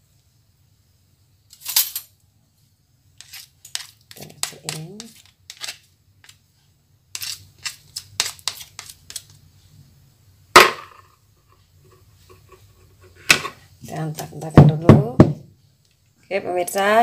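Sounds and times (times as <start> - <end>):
batter being scraped: 3.2 - 6.5, 7.1 - 9.5.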